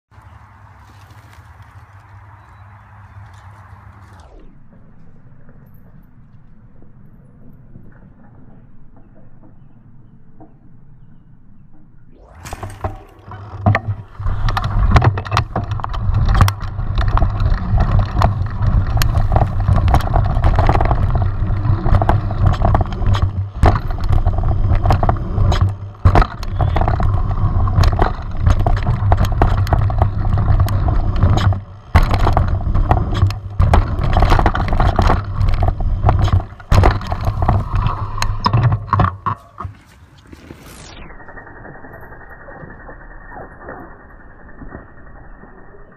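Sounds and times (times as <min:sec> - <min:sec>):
bike rumbling over dirt trail: 0:00.1 - 0:45.9
sharp rattles and knocks: 0:11.6 - 0:39.9.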